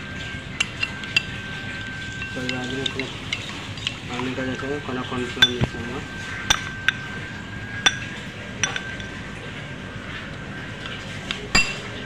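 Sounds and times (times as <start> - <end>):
metal spoon clinking on ceramic bowl: 0.6 - 1.4, 2.2 - 4.0, 6.5 - 7.1, 7.8 - 9.2, 10.8 - 12.0.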